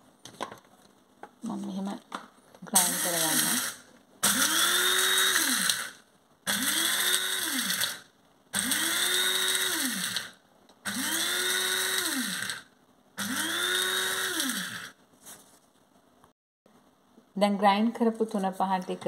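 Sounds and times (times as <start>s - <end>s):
electric coffee grinder whirring: 2.7s - 15.0s.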